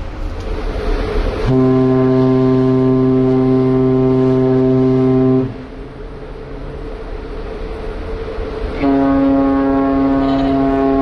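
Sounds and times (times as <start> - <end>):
ship horn blast: 1.4 - 6.2, 8.7 - 11.0.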